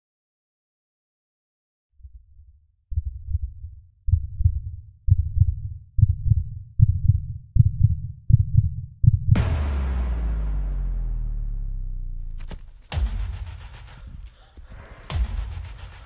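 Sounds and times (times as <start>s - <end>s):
heartbeat double thumps: 2.0s - 10.0s, 12.4s - 16.0s.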